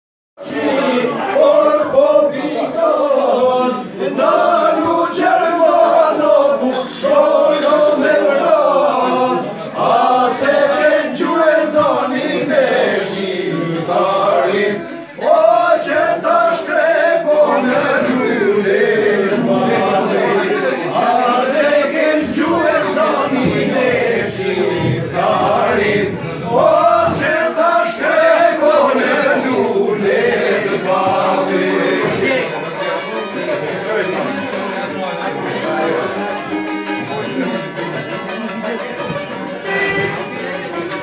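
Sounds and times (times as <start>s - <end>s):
men singing together: 0.4s - 32.6s.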